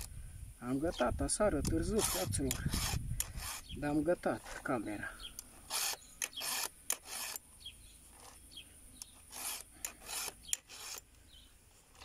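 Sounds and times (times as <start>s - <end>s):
file rasping on chain: 1.7s - 4.8s, 5.6s - 7.4s, 8.1s - 8.4s, 9.2s - 11.0s.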